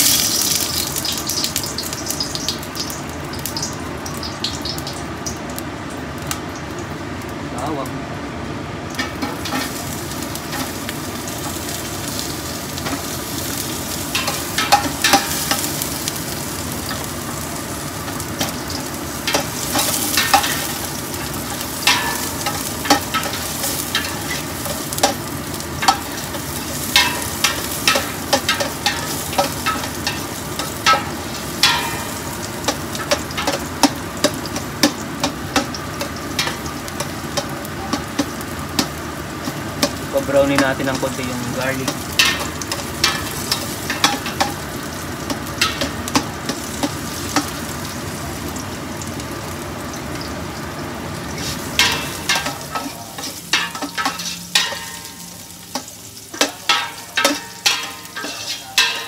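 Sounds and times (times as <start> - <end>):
garlic sizzling in oil: 0.0 - 7.8, 8.4 - 59.0
metal spoon scraping pot: 56.9 - 59.0.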